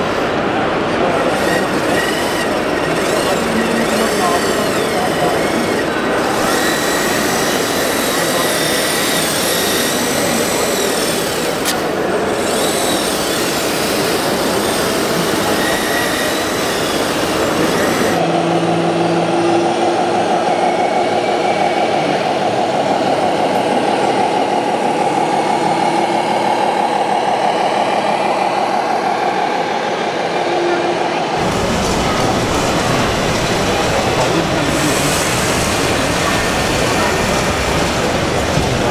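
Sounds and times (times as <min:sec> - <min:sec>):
model vehicles running: 0:00.0 - 0:18.5, 0:31.4 - 0:38.9
model truck engine hum: 0:00.0 - 0:20.3, 0:31.4 - 0:38.9
exhibition hall noise: 0:00.0 - 0:38.9.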